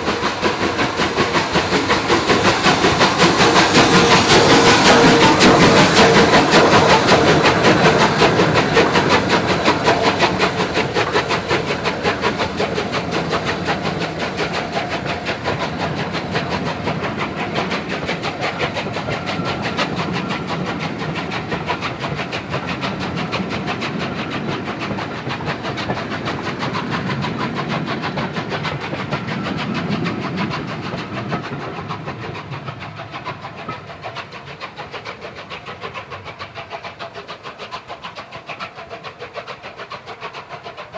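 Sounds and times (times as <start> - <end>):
steam locomotive passing: 0.0 - 40.9.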